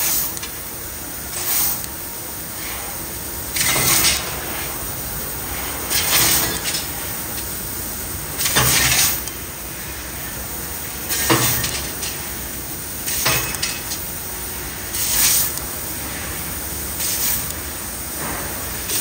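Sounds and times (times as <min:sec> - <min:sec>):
laser cutting machine noise: 0:00.0 - 0:19.0
short hissing bursts: 0:01.3 - 0:01.9, 0:14.7 - 0:15.6, 0:17.0 - 0:17.5.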